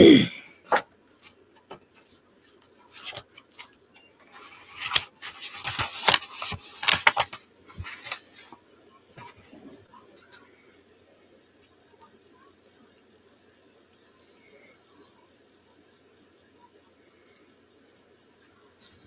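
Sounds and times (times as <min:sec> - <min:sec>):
paper rustling and rubbing: 0:02.0 - 0:03.7, 0:04.3 - 0:08.6.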